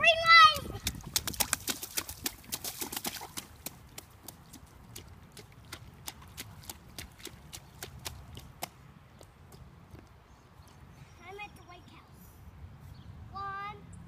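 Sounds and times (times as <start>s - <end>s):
rubber boots splashing through puddle: 0.7s - 8.8s.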